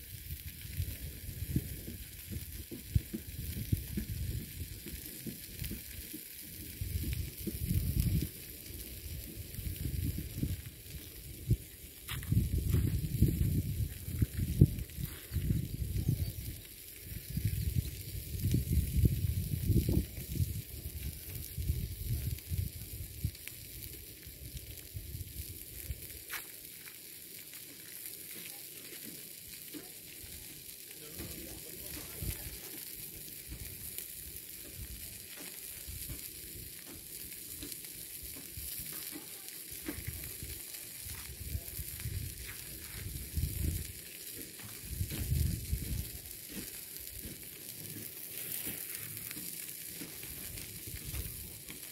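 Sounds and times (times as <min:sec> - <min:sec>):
wind rumbling on microphone: 0:00.0 - 0:26.2, 0:31.2 - 0:32.6, 0:39.8 - 0:47.3, 0:50.2 - 0:51.8
pan sizzling: 0:00.0 - 0:51.9.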